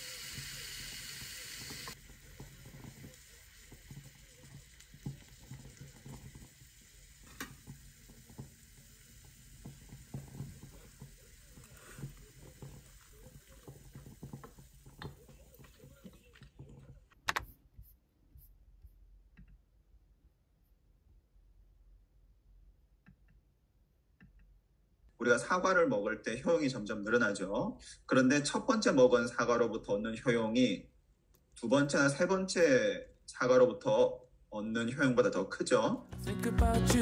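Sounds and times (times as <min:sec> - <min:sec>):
meat sizzling on a grill: 0:00.0 - 0:15.9.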